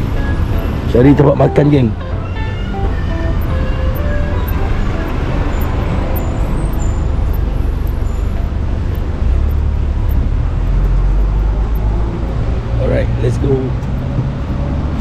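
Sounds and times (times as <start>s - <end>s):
city street traffic: 0.0s - 15.0s
deep engine rumble: 0.0s - 15.0s.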